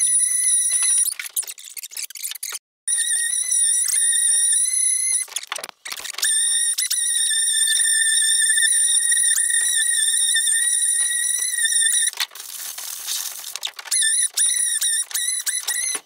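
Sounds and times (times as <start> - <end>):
high-pitched whistling tone: 2.9 - 5.3, 6.1 - 12.2.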